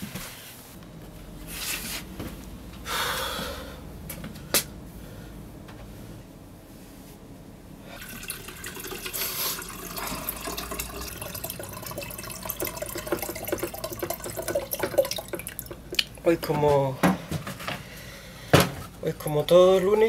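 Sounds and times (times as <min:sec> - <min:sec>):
tap water running into sink: 0:08.0 - 0:16.1.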